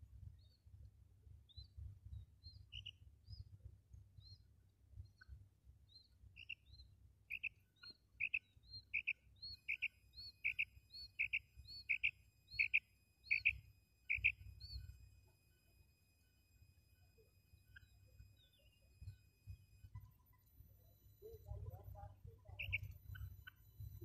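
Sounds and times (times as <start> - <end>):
quail calling: 8.2 - 14.4, 22.6 - 23.6.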